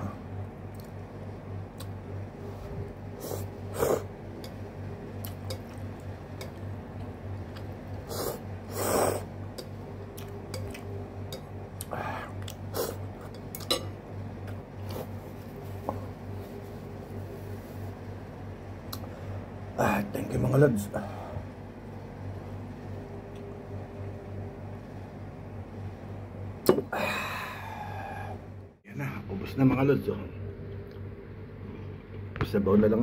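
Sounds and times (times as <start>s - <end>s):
steady low hum: 0.0s - 33.0s
slurping noodles: 3.1s - 4.1s, 7.9s - 9.3s, 12.7s - 13.1s.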